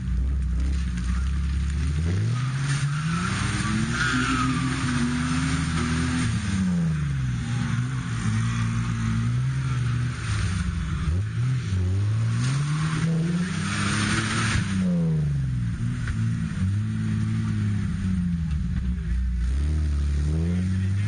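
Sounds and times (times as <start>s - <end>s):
spinning tyres throwing mud: 0.0s - 15.0s
off-road engine revving: 0.0s - 21.0s.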